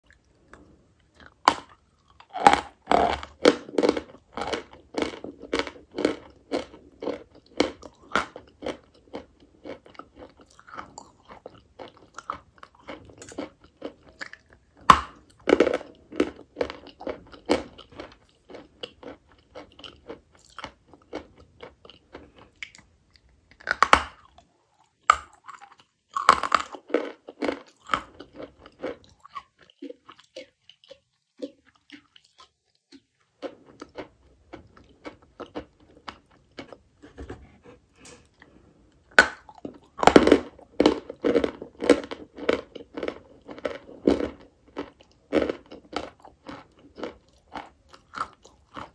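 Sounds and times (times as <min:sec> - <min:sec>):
crunchy chewing: 0:00.0 - 0:37.2, 0:37.8 - 0:48.9.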